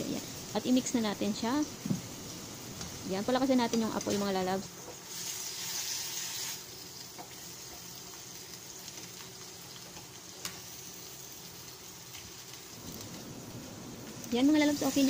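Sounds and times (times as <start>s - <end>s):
food sizzling in frying pan: 0.0s - 15.0s.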